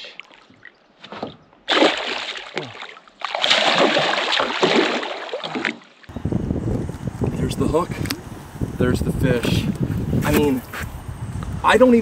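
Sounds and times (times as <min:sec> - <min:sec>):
fish thrashing in water: 0:01.2 - 0:06.0.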